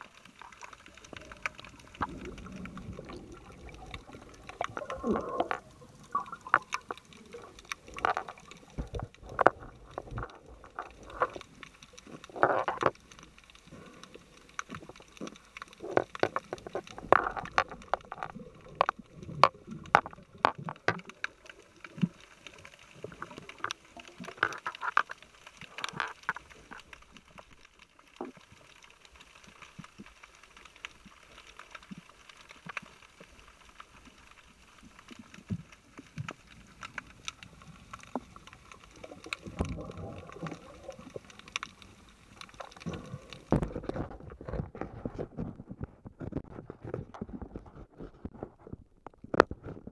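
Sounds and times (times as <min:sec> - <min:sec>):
bubbly gurgles: 0:00.0 - 0:28.7, 0:30.9 - 0:48.3
underwater clicks and knocks: 0:00.0 - 0:49.9.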